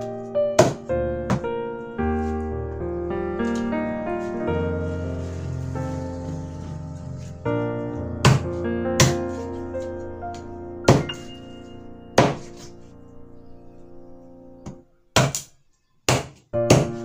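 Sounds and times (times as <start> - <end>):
background piano music: 0.0 - 15.4, 16.1 - 17.0
cleaver chopping on cutting board: 9.0 - 9.2, 16.1 - 17.0.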